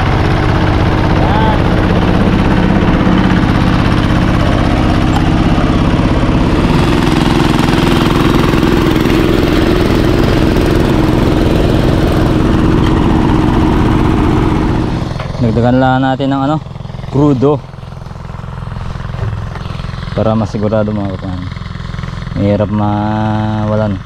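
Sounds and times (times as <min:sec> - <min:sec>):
cultivator engine running: 0:00.0 - 0:24.0.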